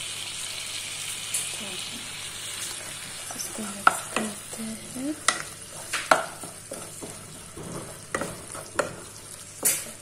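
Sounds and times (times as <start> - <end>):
faint sizzle: 0.0 - 10.0
wooden spatula scraping a pan: 3.4 - 10.0.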